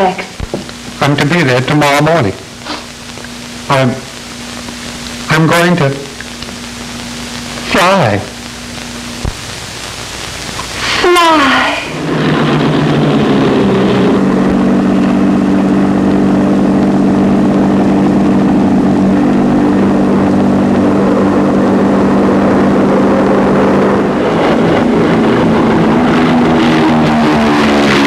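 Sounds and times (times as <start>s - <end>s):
propeller engines droning: 10.6s - 28.0s.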